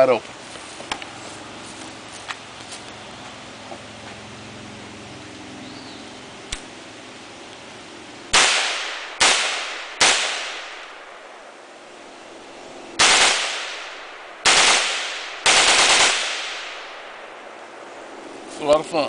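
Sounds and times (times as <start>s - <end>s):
rifle shots echoing: 8.3s - 11.6s, 13.0s - 17.9s.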